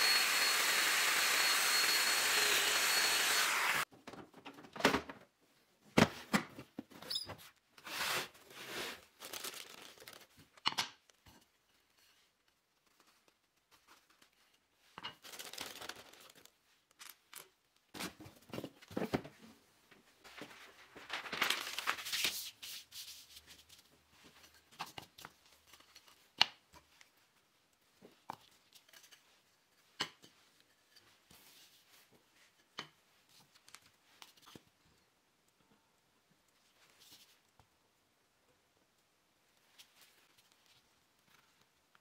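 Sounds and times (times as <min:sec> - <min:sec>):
paper rustling and crinkling: 0:07.9 - 0:10.6, 0:15.2 - 0:17.4, 0:20.2 - 0:27.2.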